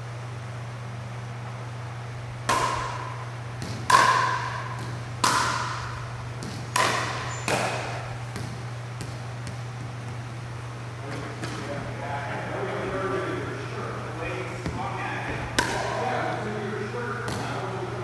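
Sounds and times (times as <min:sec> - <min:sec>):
steady low hum: 0:00.0 - 0:18.0
plastic ball being hit: 0:03.6 - 0:05.8, 0:06.4 - 0:10.2.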